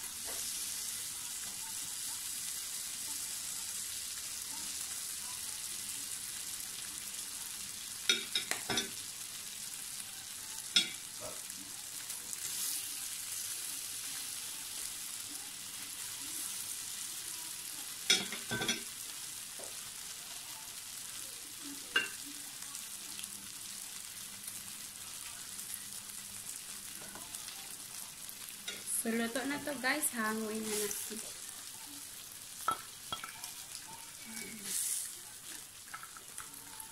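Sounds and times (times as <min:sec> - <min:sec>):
ribs sizzling on grill plate: 0:00.0 - 0:36.9.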